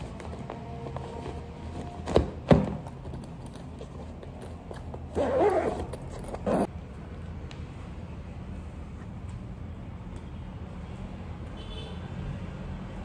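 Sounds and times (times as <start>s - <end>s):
zipper being drawn: 5.1s - 6.7s.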